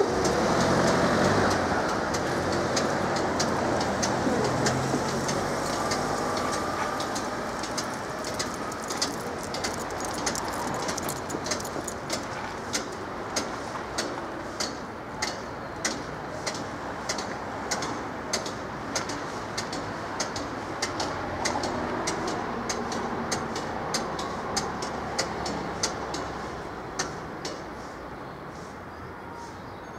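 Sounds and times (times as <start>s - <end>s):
car engine passing: 0.0s - 12.0s
road traffic noise: 0.0s - 29.9s.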